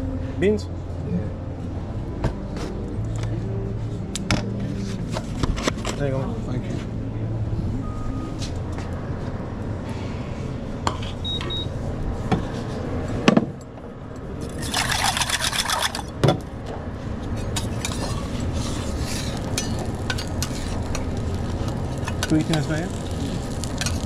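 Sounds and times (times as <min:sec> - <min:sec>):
steady low hum: 0:00.0 - 0:24.0
short high beep: 0:11.2 - 0:11.7.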